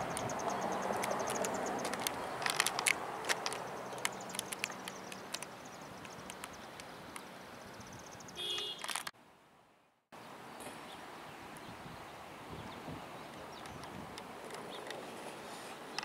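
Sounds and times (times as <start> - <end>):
quick high ticks: 0.0 - 7.3
sharp clicks: 0.0 - 7.3, 8.5 - 9.1
distant helicopter rumble: 0.0 - 9.1.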